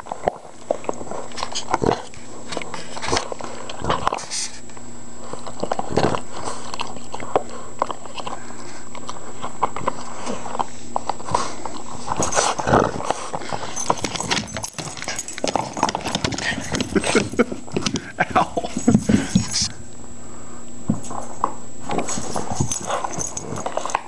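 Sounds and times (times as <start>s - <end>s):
puppy chewing a ball: 0.0s - 4.6s, 5.2s - 18.1s.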